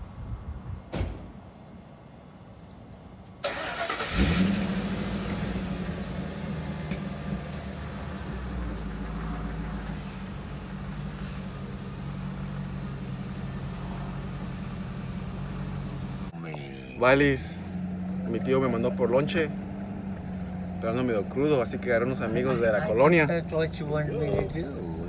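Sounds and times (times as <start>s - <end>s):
pickup truck engine starting and running: 3.4s - 25.0s.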